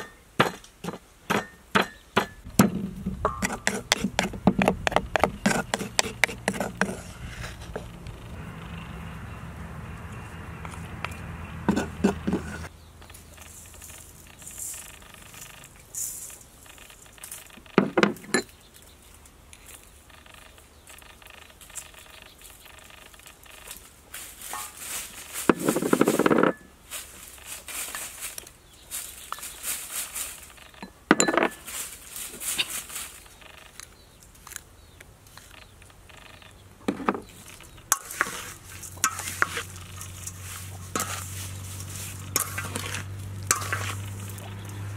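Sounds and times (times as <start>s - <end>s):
wooden spoon in steel bowl: 2.6s - 7.9s, 24.4s - 26.7s, 36.9s - 44.9s.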